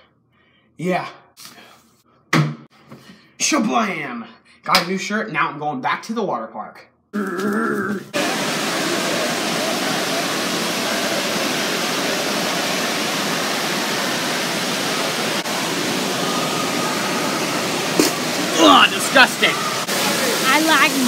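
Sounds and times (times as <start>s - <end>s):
rushing water din: 8.1s - 21.0s.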